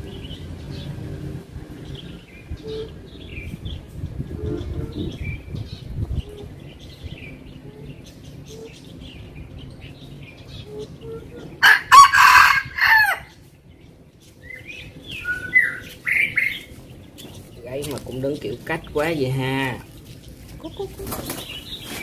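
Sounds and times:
rooster crowing: 11.6 - 13.4.

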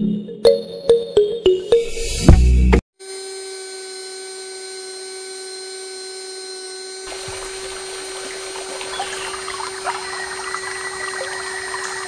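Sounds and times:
small motor whining: 3.0 - 12.0
water pouring and splashing: 7.1 - 12.0.

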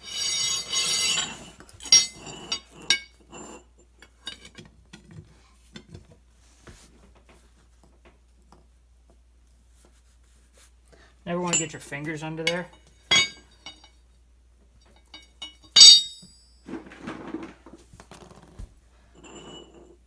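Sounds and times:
tire iron scraping against metal: 0.0 - 4.6.

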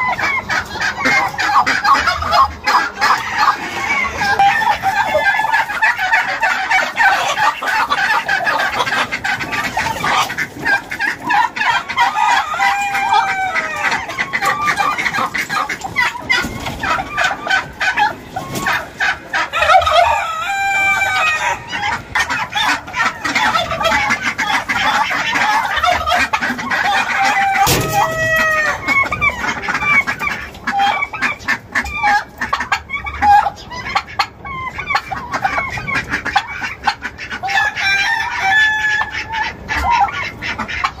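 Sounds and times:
chickens clucking: 0.0 - 41.0
rooster crowing: 12.0 - 14.0, 19.5 - 21.7, 27.0 - 29.0, 37.5 - 39.2.

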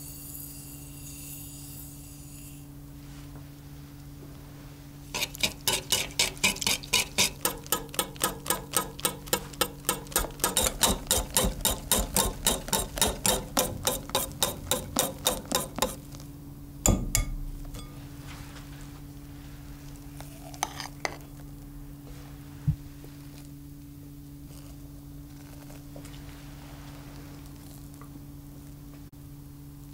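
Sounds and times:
whisk striking glass bowl: 5.2 - 16.0, 16.8 - 18.0
loud knock: 16.9 - 17.8.

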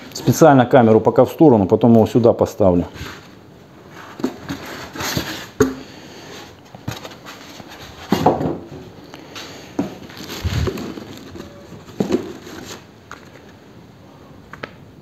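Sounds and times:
cardboard rustling and scraping: 2.9 - 13.6.

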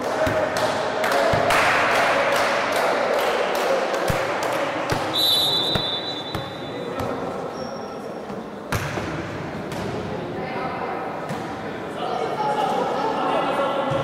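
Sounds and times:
referee's whistle: 5.1 - 6.6.

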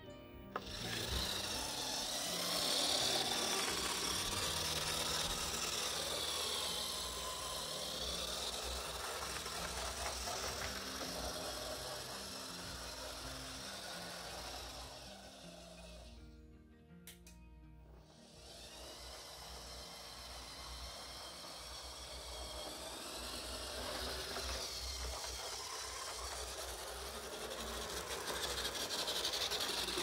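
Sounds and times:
model train motor whirring: 0.5 - 16.2, 17.9 - 30.0.

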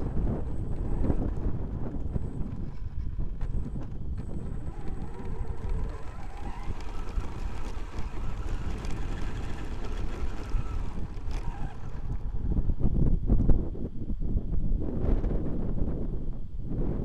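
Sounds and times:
electric motor whine: 0.0 - 13.4
wind buffeting microphone: 0.0 - 17.0
tyres running over gravel: 0.5 - 12.4.

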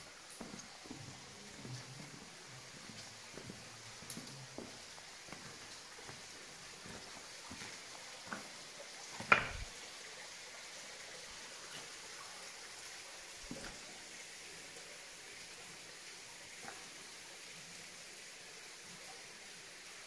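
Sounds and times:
faint steady hiss: 0.0 - 20.0
sharp knocks: 9.2 - 9.7.

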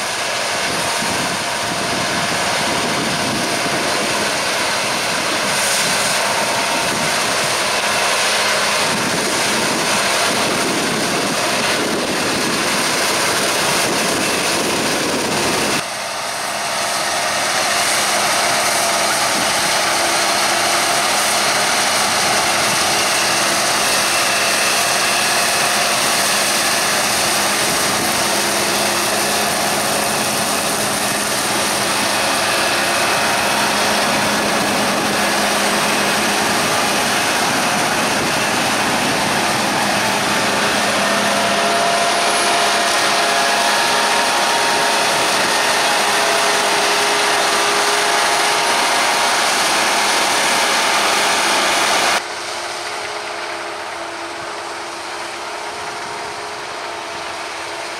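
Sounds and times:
farm machinery drone: 0.0 - 57.9.

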